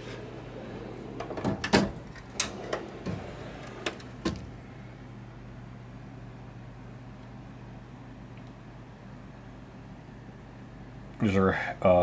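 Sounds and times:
steel drawers sliding and clunking: 0.0s - 4.6s.

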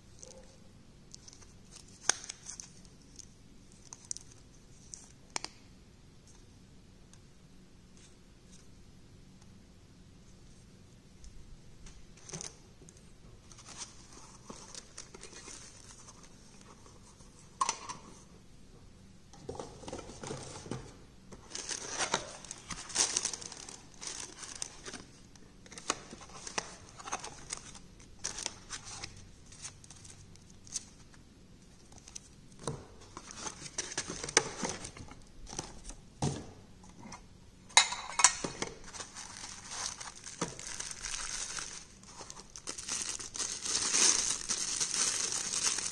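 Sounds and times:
cardboard and plastic rustling: 11.9s - 18.3s, 19.4s - 31.2s, 31.8s - 36.5s, 38.5s - 45.9s.

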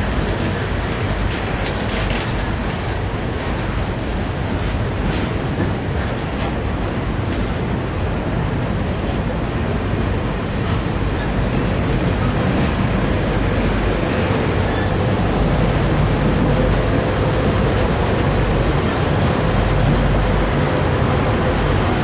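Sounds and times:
freight train wheels rumbling on rail: 0.0s - 22.0s
rattling train cars: 0.0s - 22.0s.

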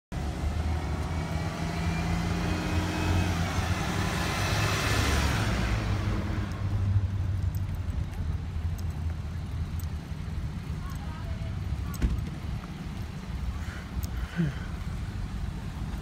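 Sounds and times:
bus driving past: 0.1s - 7.7s.

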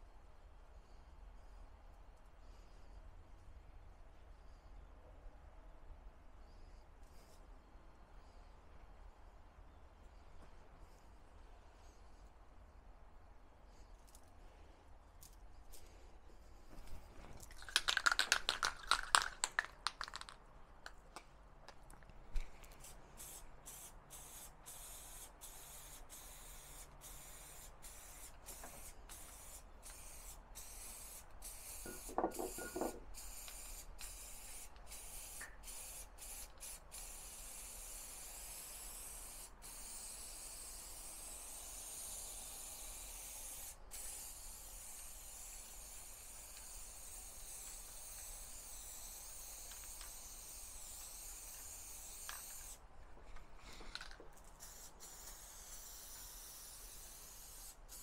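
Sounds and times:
aerosol spray hissing: 22.4s - 52.8s, 54.6s - 58.0s.

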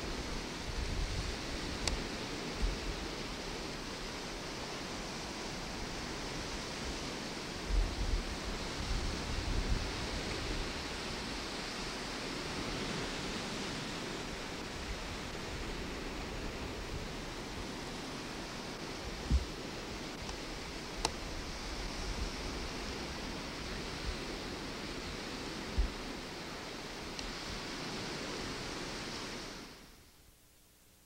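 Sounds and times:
wind buffeting microphone: 0.0s - 3.4s, 5.4s - 29.1s
rushing outdoor noise: 0.0s - 30.0s
faint click: 1.8s - 2.0s, 21.0s - 21.2s, 27.2s - 27.4s.

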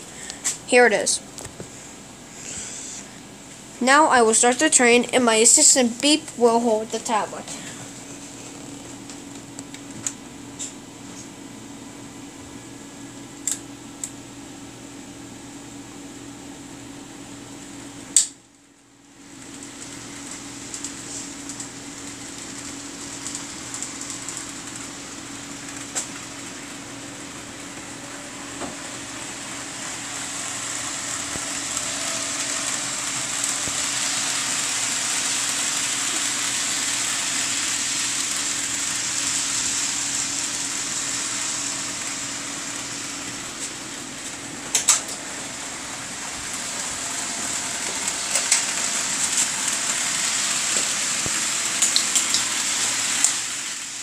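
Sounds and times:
model train running on track: 19.3s - 54.0s.

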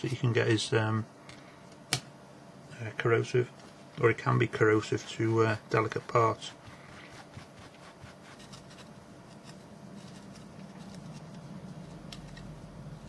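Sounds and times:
cloth rubbing on circuit board: 4.5s - 13.0s.

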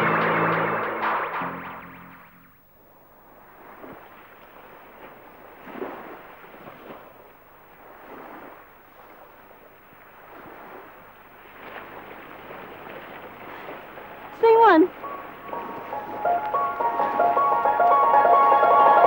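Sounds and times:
faint rushing noise: 14.9s - 19.0s.

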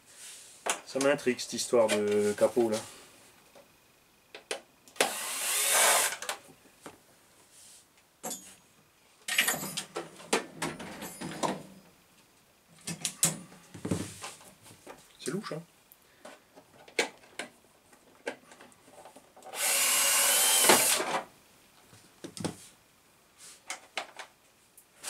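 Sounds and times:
rustling and scraping: 0.0s - 3.4s, 13.4s - 15.1s.

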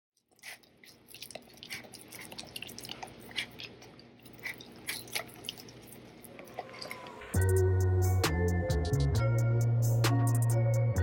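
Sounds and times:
dogs licking and chewing: 0.2s - 7.3s.

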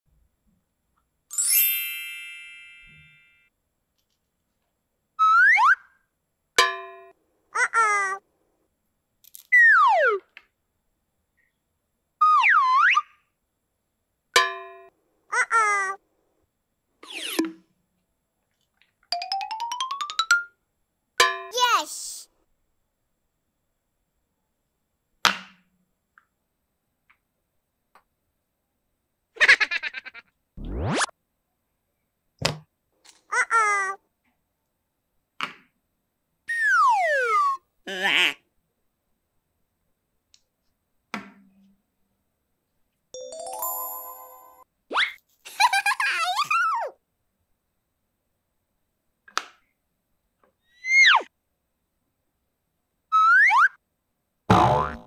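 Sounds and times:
bright chime: 1.3s - 3.5s, 43.2s - 44.6s
wobbling rising tone: 30.6s - 31.1s.

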